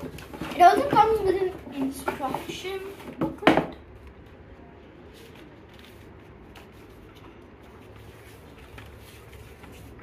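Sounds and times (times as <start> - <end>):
paper pages turning: 5.0 - 10.0.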